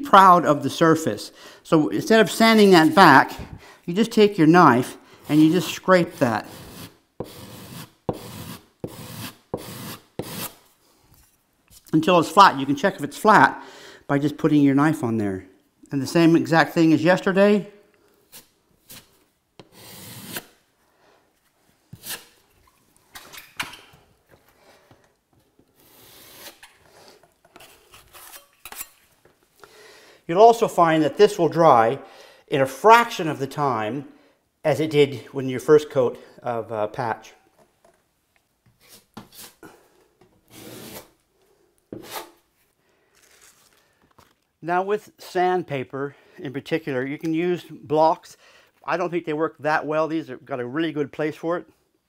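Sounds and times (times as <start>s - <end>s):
putty knife scraping plaster wall: 5.2s - 10.7s, 18.3s - 20.6s, 21.9s - 22.4s, 25.6s - 29.1s, 38.7s - 39.7s, 40.4s - 41.2s, 41.9s - 42.5s.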